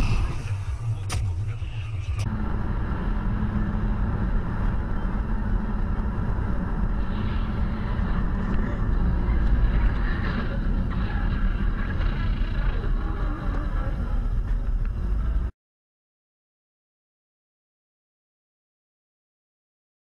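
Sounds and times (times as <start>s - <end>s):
car engine and tyre drone: 0.0s - 15.5s.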